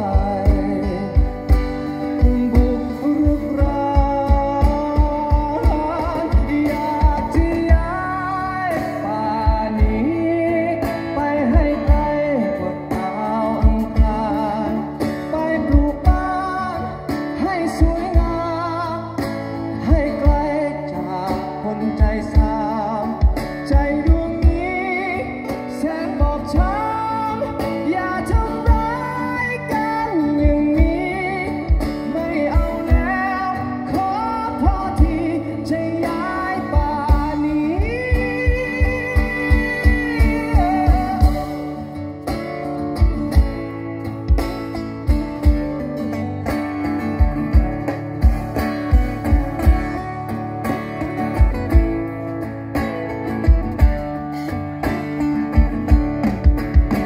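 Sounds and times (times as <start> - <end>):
drum kit beat: 0.0 - 10.5, 13.0 - 19.2, 22.0 - 57.0
person singing: 0.0 - 43.8
acoustic guitars: 0.0 - 57.0.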